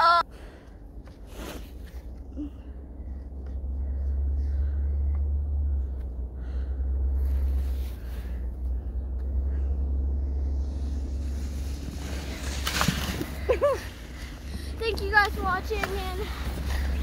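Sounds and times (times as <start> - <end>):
ski scooter swishing through snow: 7.2 - 8.4, 10.4 - 17.0.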